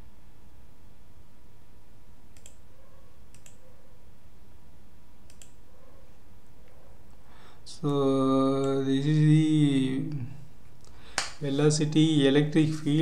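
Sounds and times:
low steady hum: 0:00.0 - 0:13.0
computer mouse clicks: 0:02.3 - 0:02.6, 0:03.3 - 0:03.6, 0:05.2 - 0:05.6.

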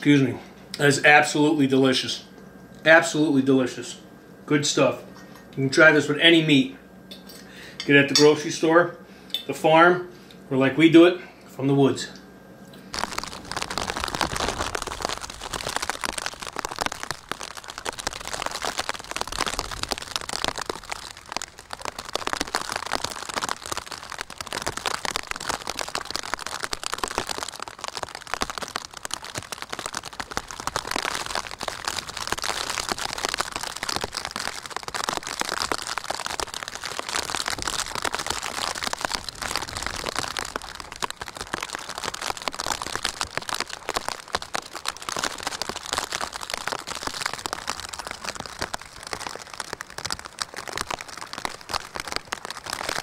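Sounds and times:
rain pattering: 0:12.9 - 0:53.0.

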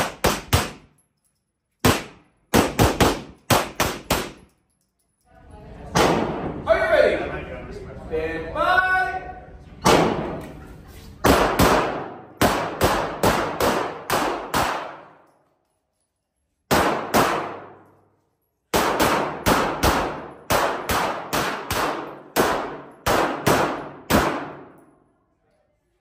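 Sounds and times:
handgun shots echoing indoors: 0:00.0 - 0:04.6, 0:09.8 - 0:10.6, 0:11.2 - 0:15.8, 0:16.7 - 0:25.1.

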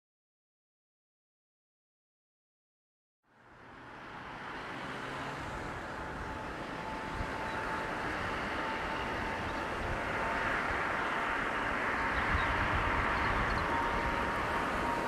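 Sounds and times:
jet engines at takeoff: 0:03.3 - 0:15.0.

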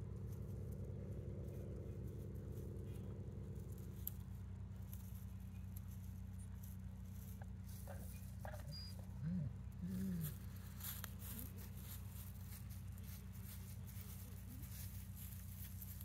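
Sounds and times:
steady low hum: 0:00.0 - 0:16.0
animal giving low calls: 0:07.9 - 0:10.8.

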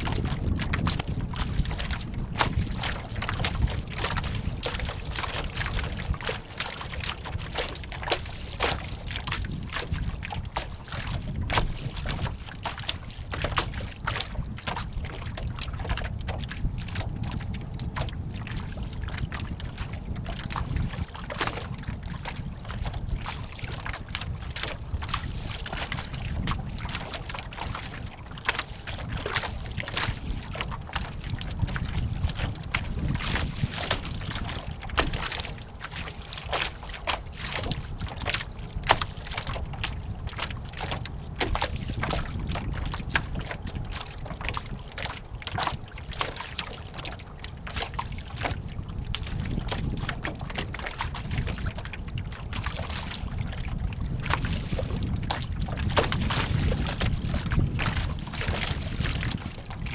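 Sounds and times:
water slapping against boat hull: 0:00.0 - 0:59.9
wind rumble on microphone: 0:00.0 - 0:59.9.

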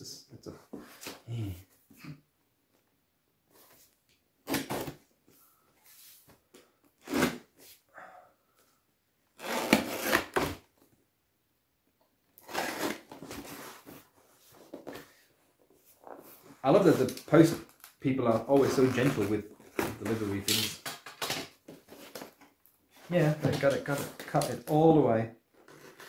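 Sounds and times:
knife slicing cardboard and tape: 0:09.4 - 0:10.6, 0:12.4 - 0:13.6.

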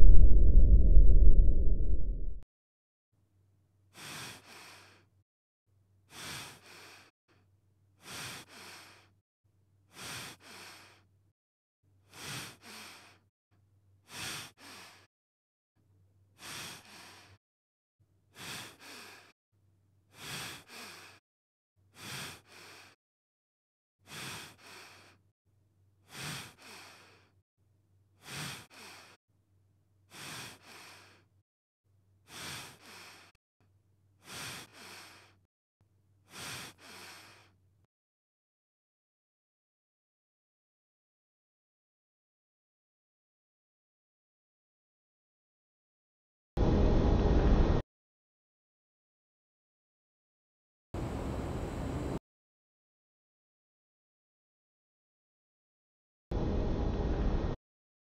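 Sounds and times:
person breathing: 0:04.0 - 0:05.1, 0:06.1 - 0:07.1, 0:08.0 - 0:09.2, 0:09.9 - 0:11.1, 0:12.1 - 0:13.3, 0:14.1 - 0:15.1, 0:16.4 - 0:17.4, 0:18.4 - 0:19.4, 0:20.1 - 0:21.2, 0:22.0 - 0:23.0, 0:24.1 - 0:25.3, 0:26.1 - 0:27.4, 0:28.2 - 0:29.2, 0:30.1 - 0:31.4, 0:32.3 - 0:33.4, 0:34.2 - 0:35.5, 0:36.3 - 0:37.6.

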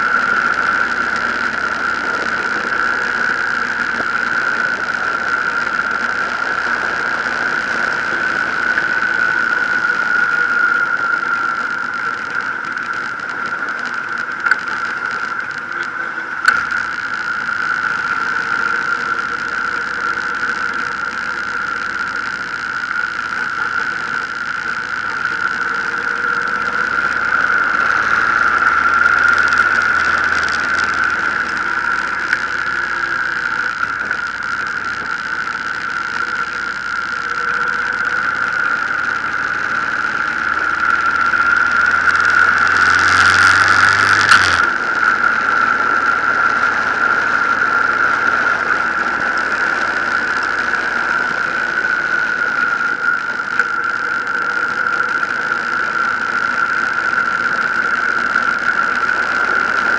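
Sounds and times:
motorcycle engine: 0:00.0 - 0:55.2
wind and road rush: 0:21.8 - 0:53.2.

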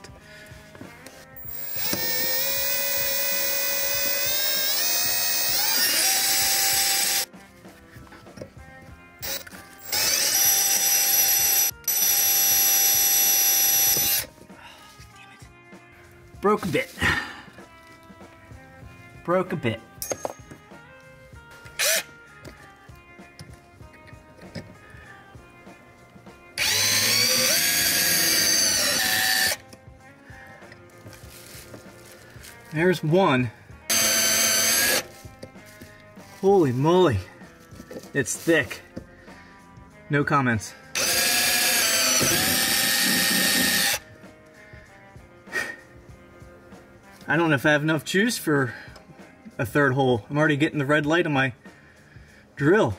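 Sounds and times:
cordless drill whining: 0:01.4 - 0:07.3, 0:09.2 - 0:14.3, 0:21.7 - 0:22.6, 0:26.6 - 0:29.7, 0:33.9 - 0:35.1, 0:40.9 - 0:44.1.

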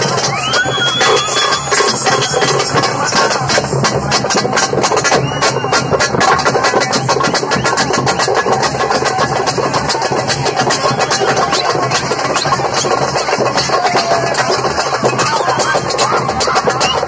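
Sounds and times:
loud music with fast drumbeats: 0:00.0 - 0:17.0.

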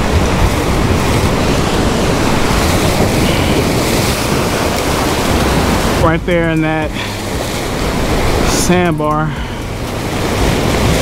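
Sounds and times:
sea surf breaking on rocks: 0:00.0 - 0:11.0
wind buffeting microphone: 0:00.0 - 0:11.0.

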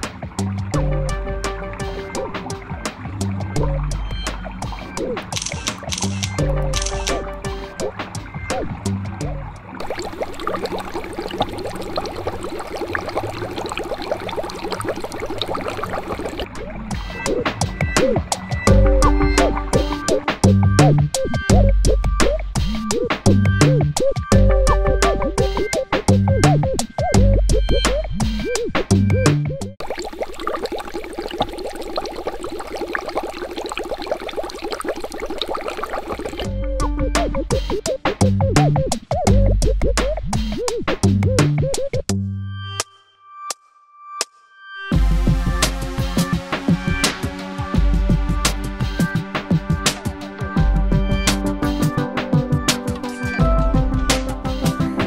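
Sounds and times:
water bubbling: 0:00.0 - 0:28.6, 0:29.8 - 0:40.7.

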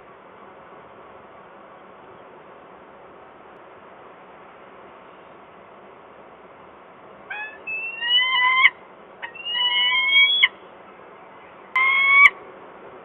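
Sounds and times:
falcon calling: 0:07.3 - 0:10.6, 0:11.7 - 0:12.4.

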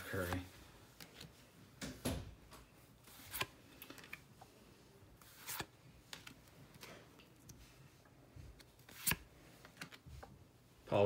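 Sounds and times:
cards rustling: 0:02.6 - 0:07.6, 0:08.5 - 0:10.3.

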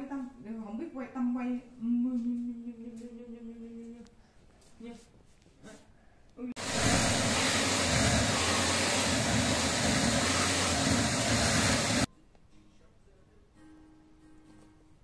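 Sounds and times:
vacuum cleaner running: 0:06.6 - 0:12.1.

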